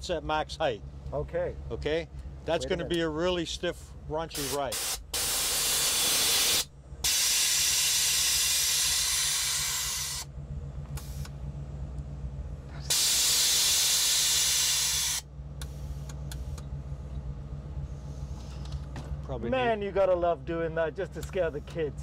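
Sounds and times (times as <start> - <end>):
low engine idle: 0.0 - 22.0
air suspension hissing blasts: 4.4 - 10.3, 10.9 - 11.4, 12.8 - 16.6.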